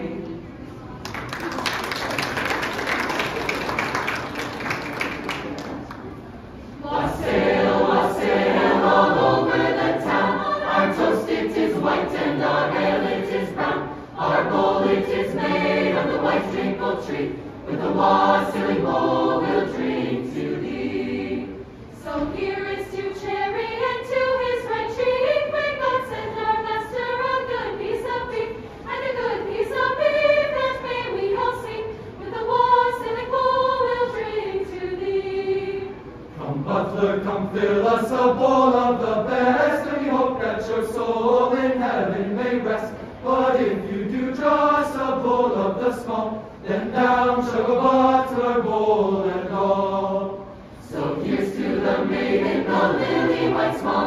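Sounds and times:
choir singing a cappella: 0.0 - 0.8, 6.6 - 54.0.

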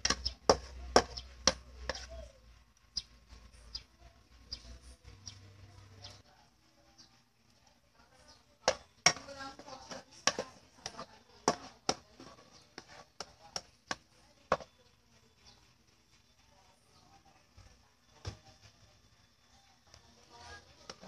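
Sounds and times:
spatula scraping frying pan: 0.0 - 2.2, 8.6 - 14.7.

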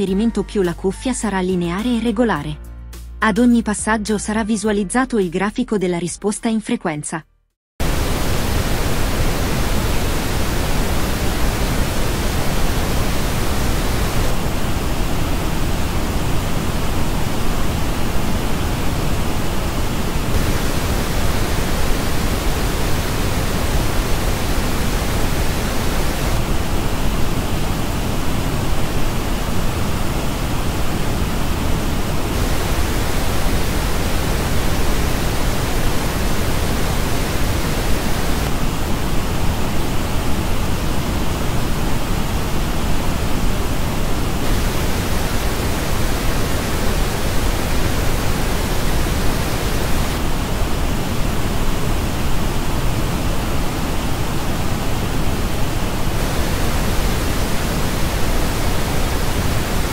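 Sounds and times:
pink noise hiss: 7.8 - 59.9.

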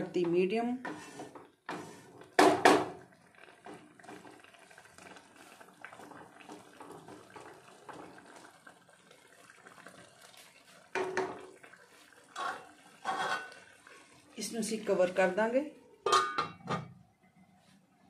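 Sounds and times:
spatula scraping a pan: 0.8 - 2.2, 12.3 - 13.6
syrup bubbling in a pan: 0.8 - 16.1.

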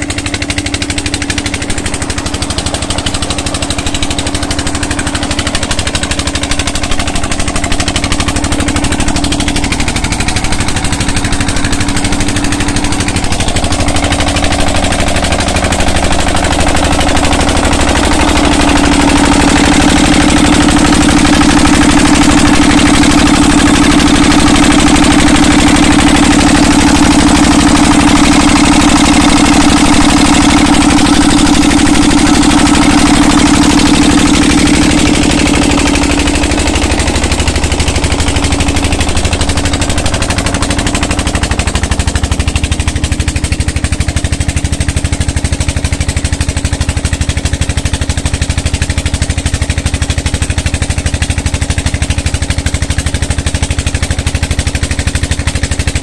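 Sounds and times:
diesel pump engine running: 0.0 - 56.0
water rushing into tank: 0.0 - 56.0.

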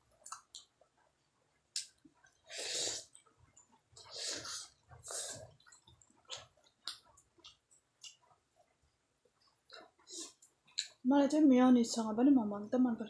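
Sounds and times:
chewing and breathing: 1.8 - 10.8.

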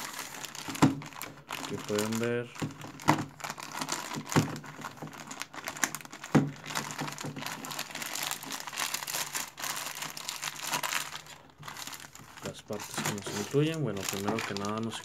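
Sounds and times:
plastic bags crinkling: 0.0 - 15.0.

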